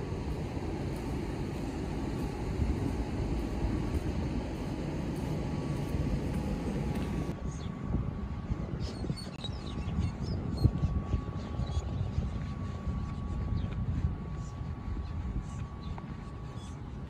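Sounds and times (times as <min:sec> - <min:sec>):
low unsteady rumble: 0:00.0 - 0:17.0.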